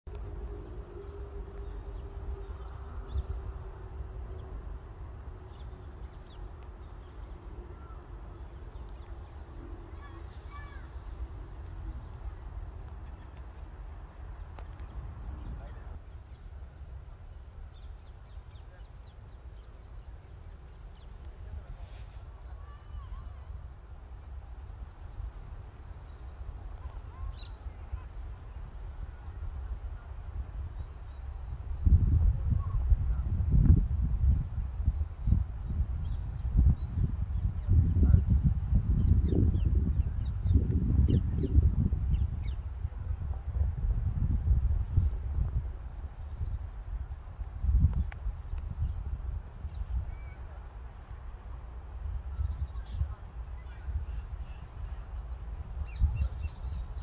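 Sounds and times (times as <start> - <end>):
small birds chirping: 4.2 - 29.3.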